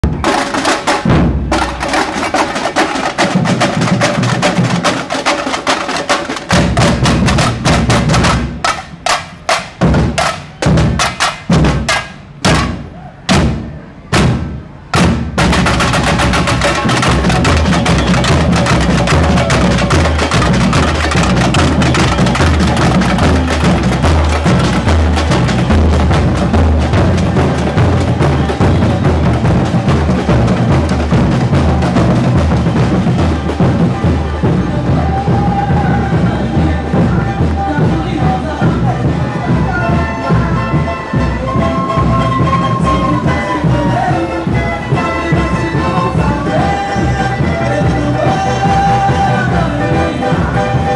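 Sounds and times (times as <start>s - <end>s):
samba drum band playing: 0.0s - 50.9s
bass drum beat: 15.0s - 50.9s.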